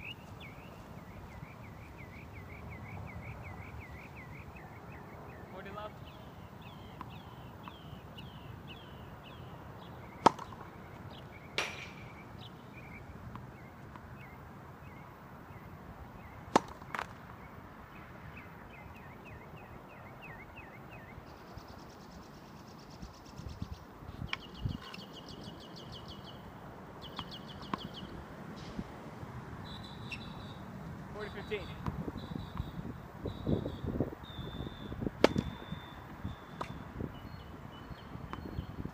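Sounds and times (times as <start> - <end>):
birds chirping: 0.0 - 28.9, 29.5 - 38.9
tennis ball hit by racket: 10.2 - 10.6, 11.6 - 12.2, 16.5 - 17.2, 35.2 - 35.6
distant soft pop: 11.6 - 12.2.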